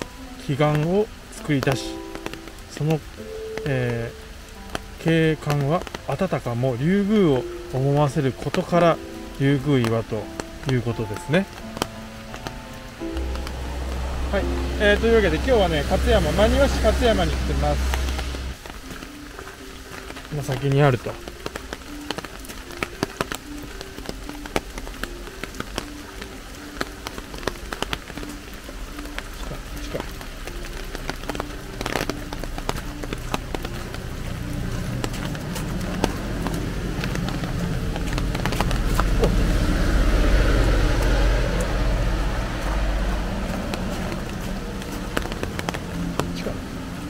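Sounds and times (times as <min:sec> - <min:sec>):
rain pattering: 0:00.0 - 0:47.0
sharp drip taps: 0:07.1 - 0:39.4
car passing: 0:08.6 - 0:18.7, 0:23.5 - 0:47.0
footsteps on gravel: 0:31.3 - 0:39.7.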